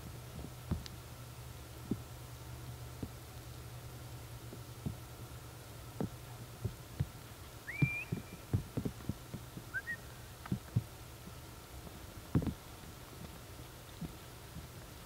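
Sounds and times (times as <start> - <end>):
heater humming: 0.0 - 15.0
short whistled chirps: 7.7 - 8.4, 9.7 - 10.1.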